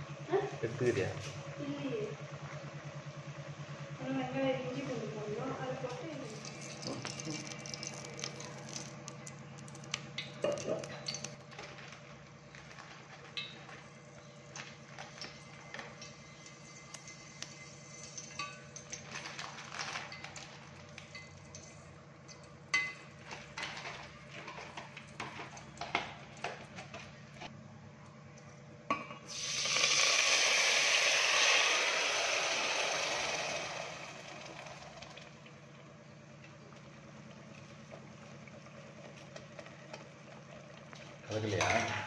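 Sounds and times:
spices frying in oil: 0:06.1 - 0:11.6, 0:12.4 - 0:23.2, 0:29.3 - 0:34.4
loud sizzle: 0:15.1 - 0:21.9, 0:29.2 - 0:35.3.

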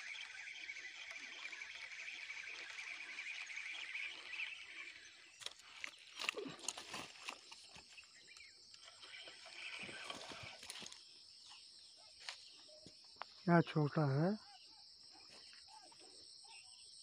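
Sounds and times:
dry twigs crackling and rustling: 0:00.0 - 0:11.6
high insect buzz: 0:08.7 - 0:12.4.

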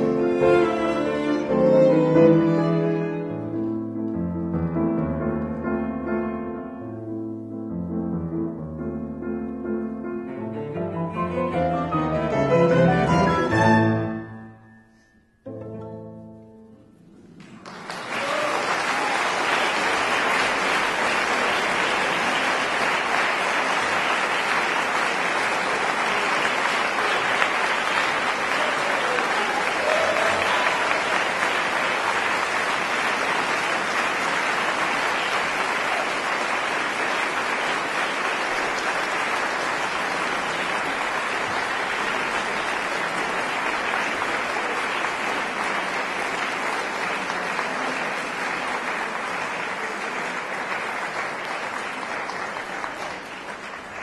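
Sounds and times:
audience applauding: 0:17.2 - 0:54.0.

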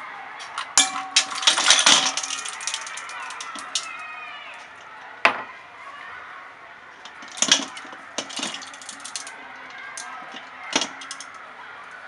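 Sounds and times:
ice cubes clinking in steel bowl: 0:00.7 - 0:04.0, 0:07.1 - 0:11.4.

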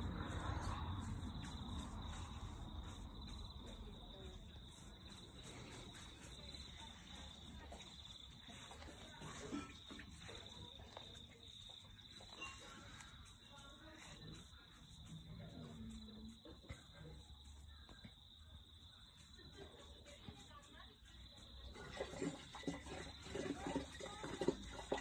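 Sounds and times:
insect trill: 0:00.0 - 0:19.5.

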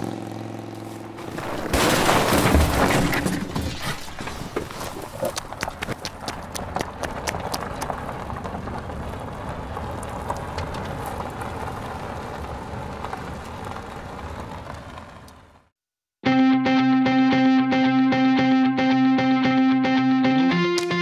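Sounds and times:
dirt and gravel settling: 0:00.7 - 0:15.6
electric guitar music: 0:16.2 - 0:21.0.

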